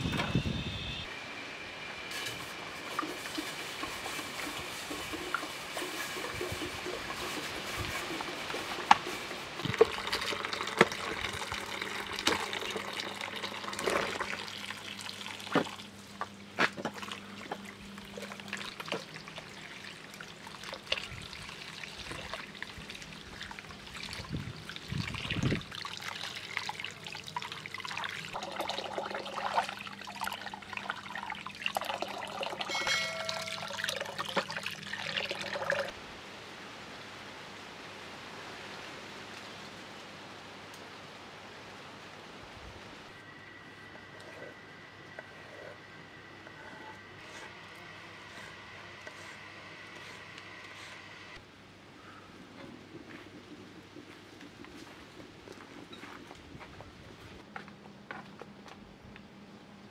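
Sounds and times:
water poured into metal vessel: 0:09.6 - 0:15.5, 0:18.5 - 0:35.9
faint steady hum: 0:09.6 - 0:59.9.

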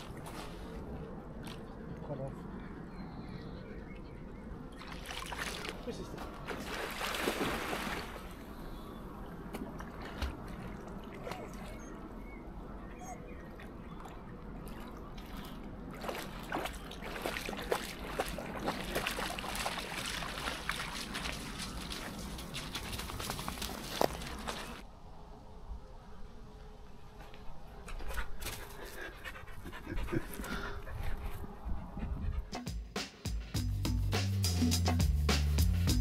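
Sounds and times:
water lapping and sloshing: 0:00.0 - 0:02.0, 0:04.7 - 0:24.8
small splashes and drips: 0:04.8 - 0:05.9, 0:13.6 - 0:24.8
dog splashing in water: 0:04.8 - 0:08.3, 0:14.6 - 0:24.8.

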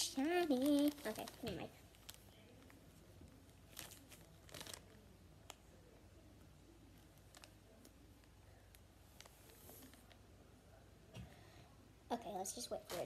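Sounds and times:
foam squishy rustling and crinkling: 0:00.0 - 0:05.7, 0:07.0 - 0:08.0.

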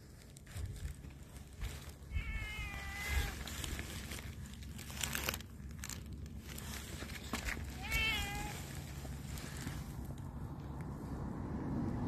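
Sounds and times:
cat meowing: 0:02.0 - 0:03.5, 0:07.6 - 0:08.8.

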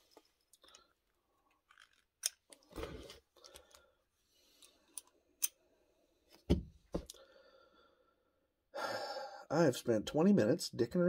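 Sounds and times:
thump of parts put down: 0:06.5 - 0:07.1.

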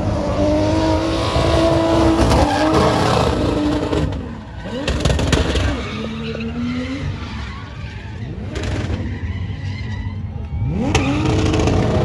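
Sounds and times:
car engine revving: 0:00.0 - 0:07.2, 0:09.9 - 0:12.0
tyres skidding: 0:00.0 - 0:12.0.

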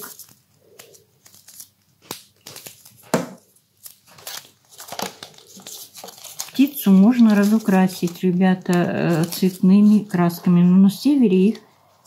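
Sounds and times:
paper rustling and crinkling: 0:00.0 - 0:10.4.

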